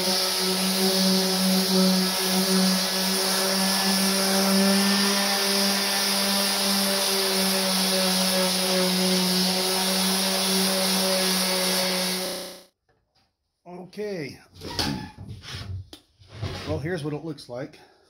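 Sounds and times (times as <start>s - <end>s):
orbital sander humming: 0.0s - 12.7s.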